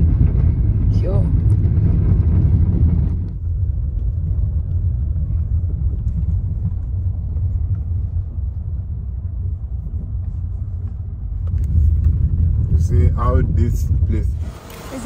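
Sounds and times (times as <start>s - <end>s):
car rumble from inside cabin: 0.0s - 15.0s.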